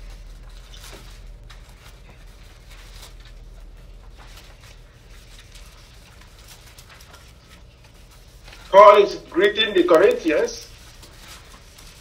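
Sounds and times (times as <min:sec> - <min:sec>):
faint rustles and clicks: 0:00.0 - 0:08.8, 0:09.7 - 0:12.0.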